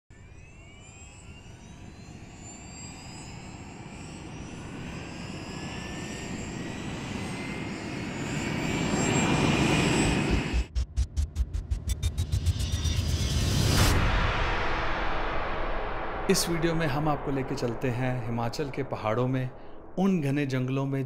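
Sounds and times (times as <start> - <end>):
rising build-up sound effect: 9.3 - 20.9.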